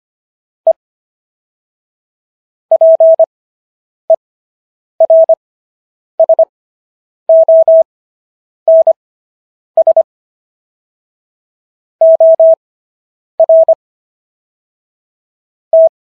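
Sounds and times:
morse code beeps: 2.7 - 3.2, 5.0 - 5.4, 6.2 - 6.5, 7.3 - 7.9, 8.7 - 9.0, 9.8 - 10.1, 12.0 - 12.6, 13.4 - 13.8, 15.8 - 16.0.

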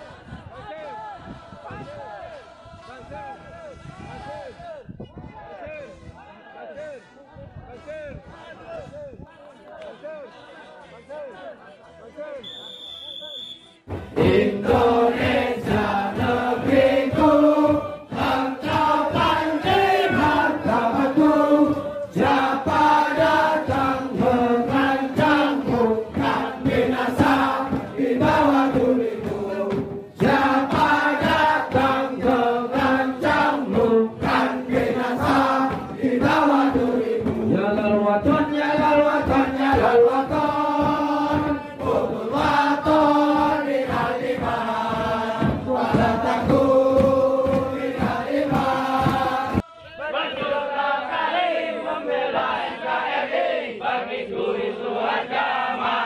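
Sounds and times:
men chanting in unison: 14.1 - 56.0.

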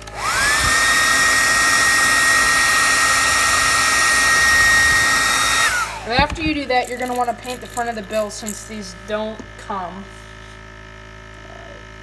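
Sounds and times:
hot-air blower whining: 0.0 - 12.0.

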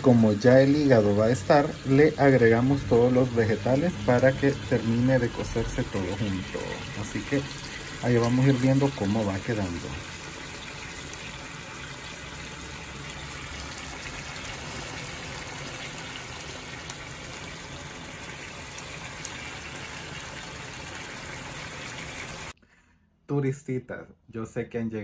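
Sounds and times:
food sizzling in frying pan: 0.0 - 22.5.

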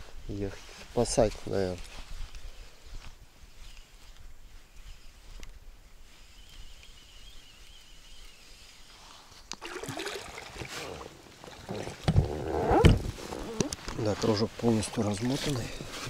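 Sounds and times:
water splashing against boat hull: 9.5 - 13.5.

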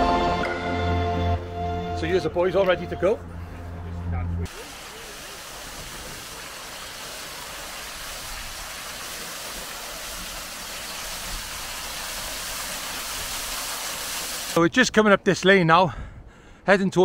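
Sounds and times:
water splashing over waterwheel: 4.5 - 14.6.

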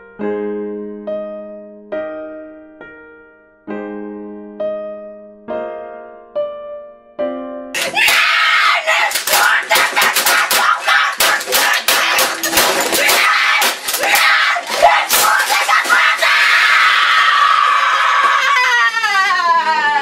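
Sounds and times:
boy screaming in rage: 7.8 - 12.2, 13.0 - 20.0
keyboard smashing against desk: 7.8 - 16.7.

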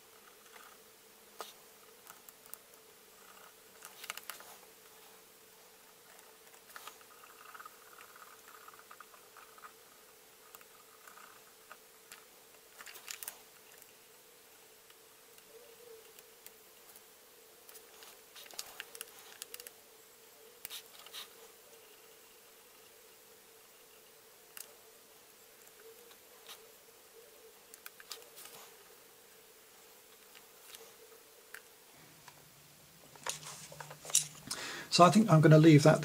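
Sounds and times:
faint steady hum: 0.0 - 36.0
fingers handling plastic figure: 17.7 - 19.7.

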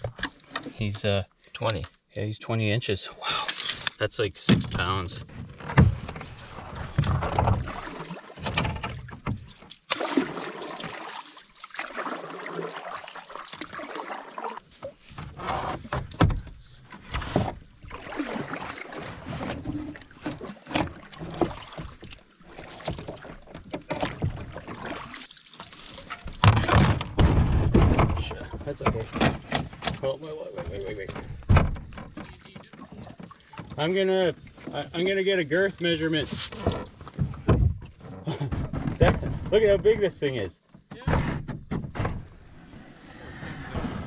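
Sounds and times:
thumps against canoe hull: 4.4 - 10.2, 14.8 - 25.1, 26.0 - 35.1, 36.2 - 40.0, 40.7 - 42.5.

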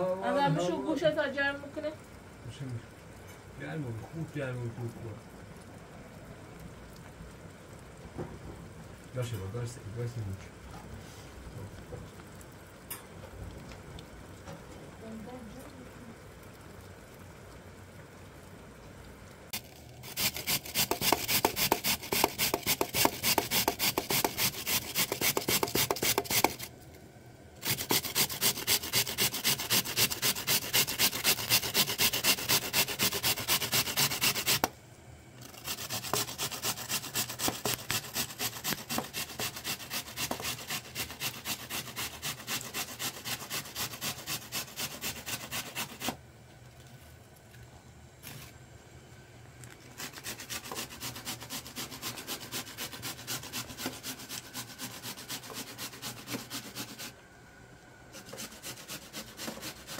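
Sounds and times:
rasping back and forth strokes: 19.6 - 26.7, 27.6 - 34.7, 35.4 - 46.2, 50.0 - 57.2, 58.1 - 59.9.

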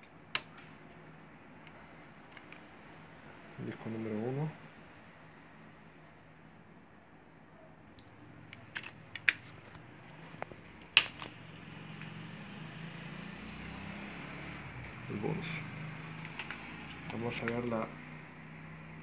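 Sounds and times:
plastic clicks of cd case tray: 16.2 - 17.7.

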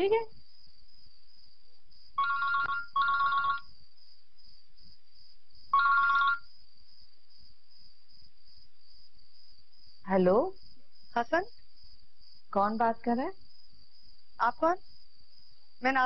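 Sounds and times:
two-tone phone ringtone: 2.2 - 3.7, 5.8 - 6.5.

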